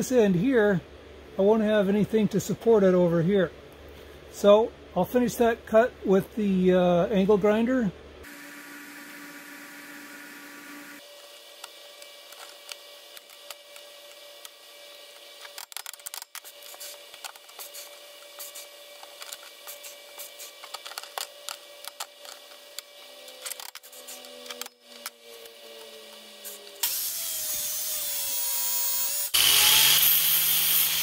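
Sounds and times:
steady shop hum: 0:00.0 - 0:31.0
steel tubing clicks and rattles: 0:15.4 - 0:25.1.

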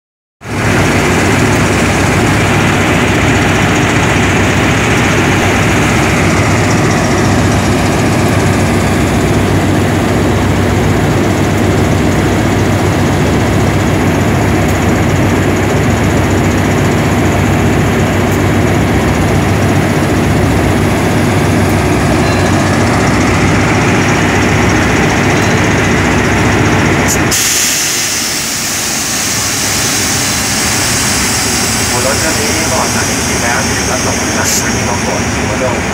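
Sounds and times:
locomotive engine idling: 0:00.5 - 0:35.9
hiss: 0:27.3 - 0:32.3.

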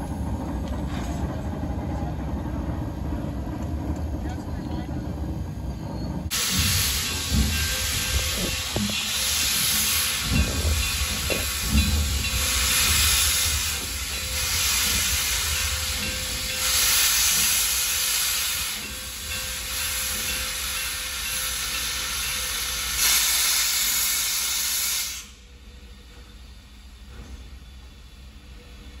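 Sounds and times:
steam locomotive hissing steam: 0:06.3 - 0:29.0.

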